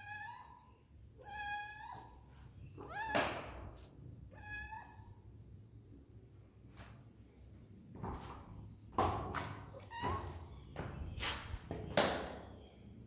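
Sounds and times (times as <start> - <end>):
cat meowing: 4.3 - 5.2.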